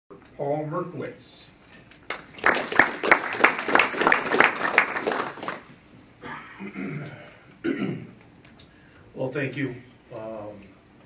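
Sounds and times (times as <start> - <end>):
audience applause: 2.1 - 5.7.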